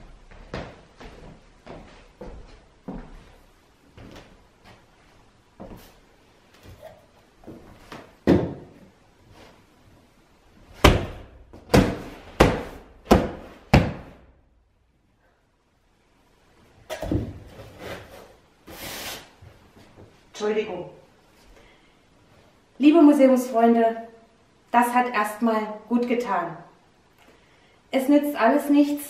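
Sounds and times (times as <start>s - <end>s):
hands hitting beanbag cushion: 10.8s - 14.2s.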